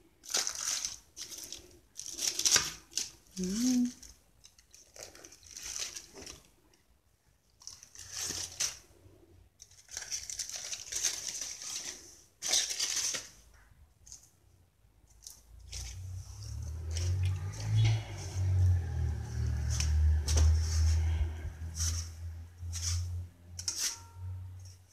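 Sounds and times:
aluminium foil crinkling: 0:00.1 - 0:06.8, 0:07.4 - 0:14.4.

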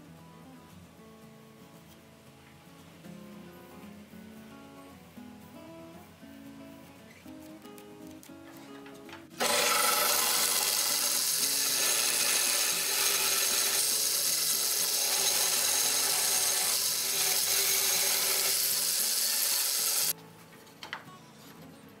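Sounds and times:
band saw cutting wood: 0:09.4 - 0:20.1.

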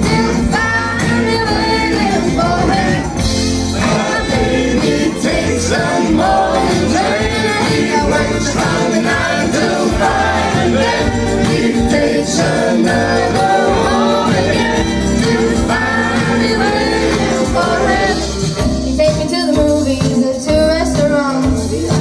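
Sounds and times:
woman singing into a microphone: 0:00.0 - 0:03.1, 0:19.0 - 0:22.0
acoustic guitar: 0:00.0 - 0:22.0
bass: 0:00.0 - 0:22.0.

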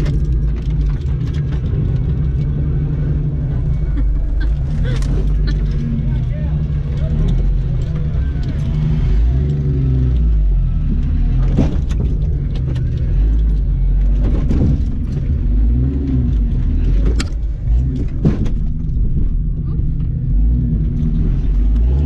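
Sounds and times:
interior rattles: 0:00.0 - 0:09.6, 0:10.8 - 0:21.8
engine running at low revs: 0:00.0 - 0:22.0
body creaks and knocks: 0:11.1 - 0:20.1.

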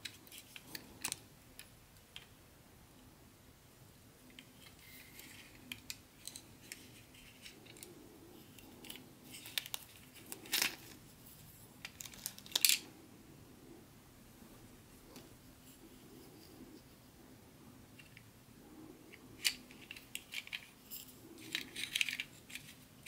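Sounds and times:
plastic parts clicking: 0:00.0 - 0:02.3, 0:21.4 - 0:22.8
plastic wrapping crinkling: 0:11.8 - 0:12.8.

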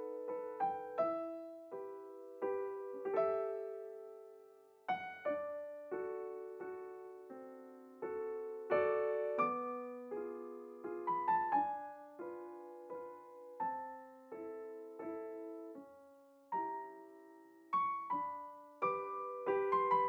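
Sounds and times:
slow solo piano: 0:00.0 - 0:20.0.

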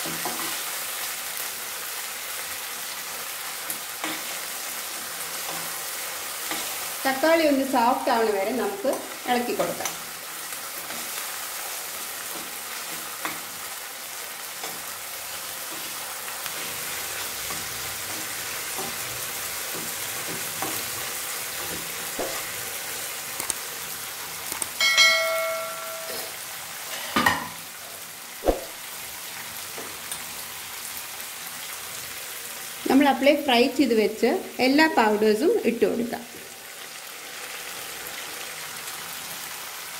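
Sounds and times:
vegetables sizzling in hot oil: 0:00.0 - 0:39.9
short metallic ring: 0:24.8 - 0:26.4.

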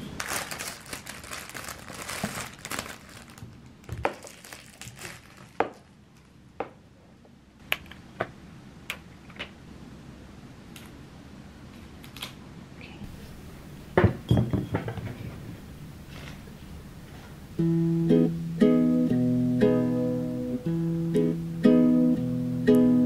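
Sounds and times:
cellophane crinkling: 0:00.0 - 0:06.4.

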